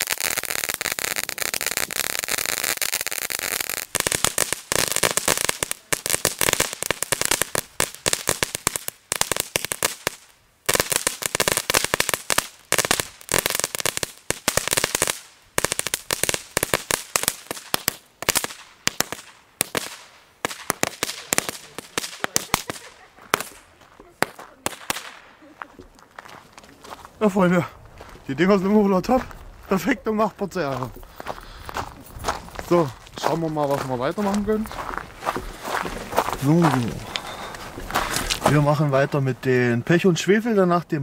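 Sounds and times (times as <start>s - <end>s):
firework fountain crackling: 0.0s - 27.6s, 28.7s - 39.8s.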